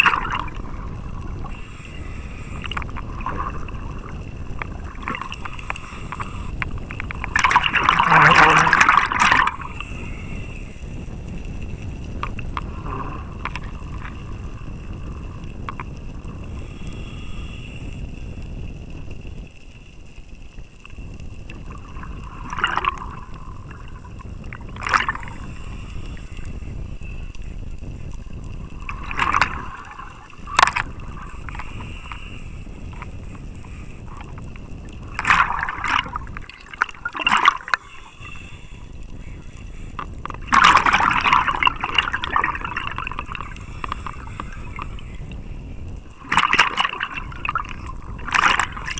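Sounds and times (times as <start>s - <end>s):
divers exhaling bubbles: 0.0s - 11.1s, 12.3s - 15.7s, 21.5s - 26.2s, 27.8s - 32.4s, 34.0s - 38.3s, 40.0s - 45.5s, 46.1s - 48.9s
underwater rush of water: 0.0s - 48.9s.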